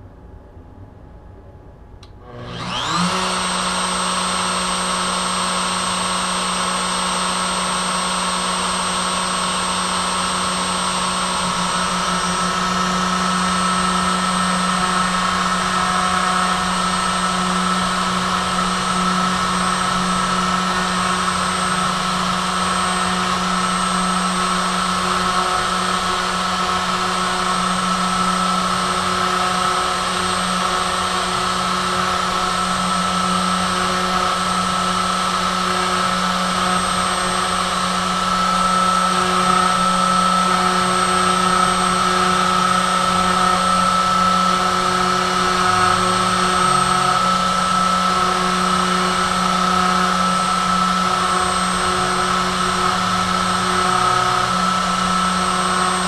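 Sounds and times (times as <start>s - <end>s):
router motor whining: 2.0s - 56.0s.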